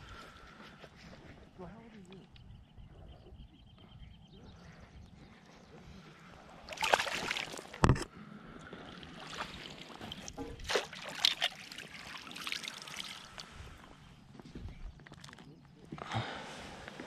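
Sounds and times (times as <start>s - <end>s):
water splashing: 6.7s - 7.9s, 8.7s - 13.7s.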